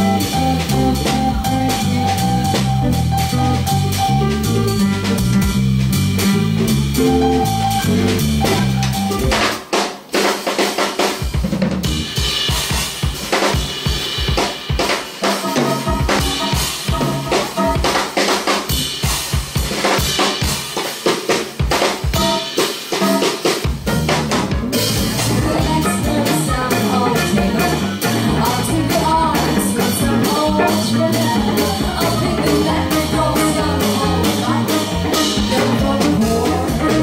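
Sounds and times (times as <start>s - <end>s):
electric bass line: 0.0s - 9.6s, 15.5s - 18.0s, 23.7s - 37.0s
live band music: 0.0s - 37.0s.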